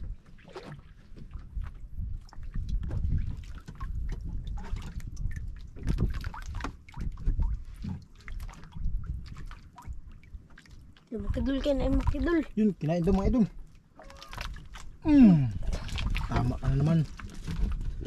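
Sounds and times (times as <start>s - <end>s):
wind rumble on microphone: 0.0s - 10.4s, 11.1s - 12.5s, 15.4s - 18.0s
water lapping against boat hull: 0.0s - 18.0s.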